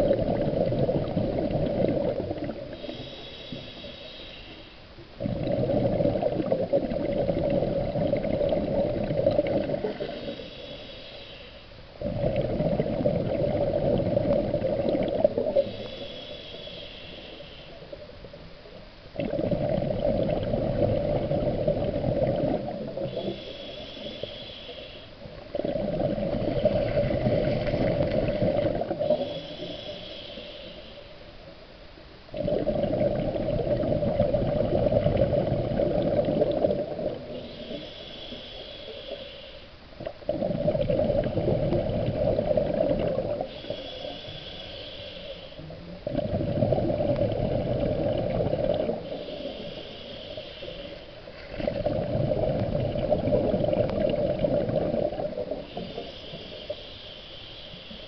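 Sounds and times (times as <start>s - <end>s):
exhaled bubbles rumbling: 0.0s - 3.1s, 5.0s - 10.5s, 12.0s - 16.0s, 17.8s - 23.5s, 25.2s - 29.8s, 32.3s - 37.9s, 40.0s - 44.4s, 45.6s - 49.8s, 51.2s - 56.1s
regulator inhale hiss: 2.7s - 5.0s, 9.8s - 12.5s, 14.5s - 18.1s, 22.7s - 31.5s, 36.6s - 39.9s, 43.2s - 45.9s, 47.2s - 51.5s, 55.0s - 58.0s.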